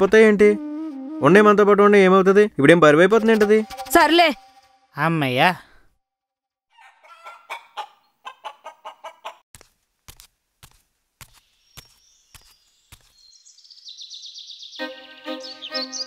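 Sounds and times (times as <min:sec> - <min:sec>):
rooster clucking: 0:06.7 - 0:09.4.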